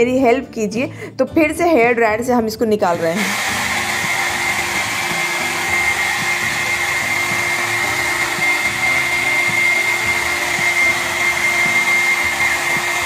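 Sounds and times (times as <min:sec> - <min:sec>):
hair dryer running: 0:02.9 - 0:13.0.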